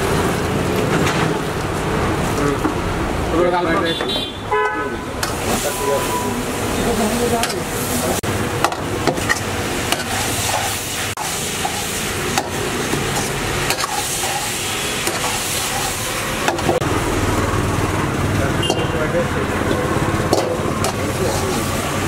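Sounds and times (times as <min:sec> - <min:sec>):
food sizzling in a wok: 0:05.2 - 0:18.6, 0:19.5 - 0:22.0
gas burner rushing: 0:05.2 - 0:22.0
spatula scraping a wok: 0:07.4 - 0:16.8, 0:20.3 - 0:22.0.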